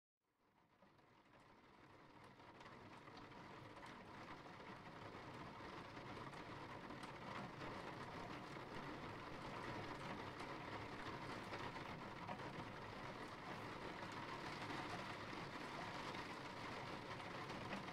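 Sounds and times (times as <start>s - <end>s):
steady rain hissing: 2.8s - 17.9s.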